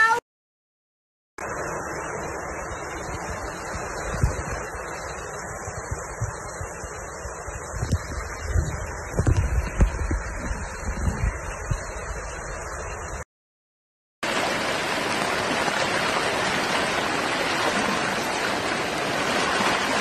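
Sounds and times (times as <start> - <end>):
wind buffeting microphone: 2.6 - 13.2
fast-flowing floodwater rushing: 14.2 - 20.0.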